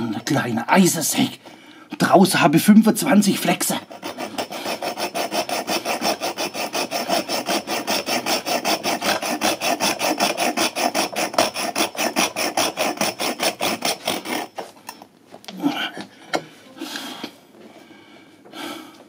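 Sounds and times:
hacksaw cutting metal tube: 3.4s - 15.0s.

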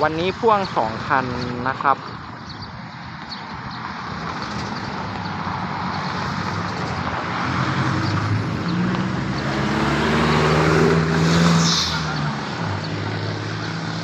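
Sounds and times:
diesel train engine: 0.0s - 10.4s
train rumble: 3.9s - 8.7s.

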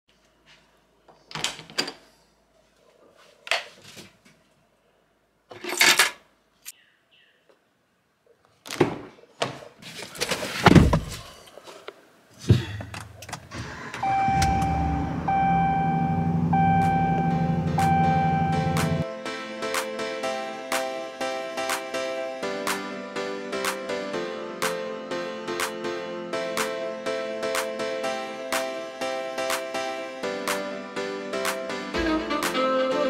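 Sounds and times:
music with held tones: 14.0s - 33.0s
steady low hum: 14.1s - 19.0s.

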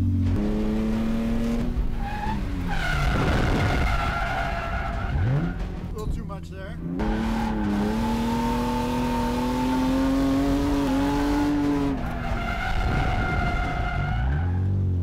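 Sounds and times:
car engine revving high: 0.0s - 2.0s, 6.8s - 14.7s
tyre squeal: 11.8s - 14.7s.

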